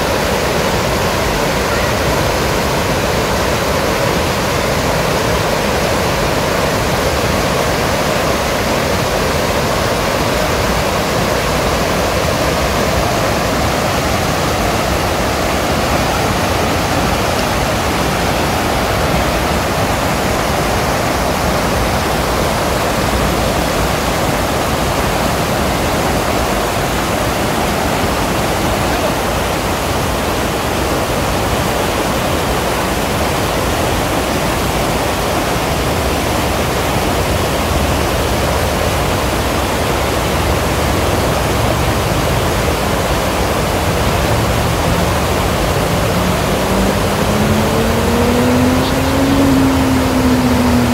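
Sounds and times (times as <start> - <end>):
river water rushing over stones: 0.0 - 50.9.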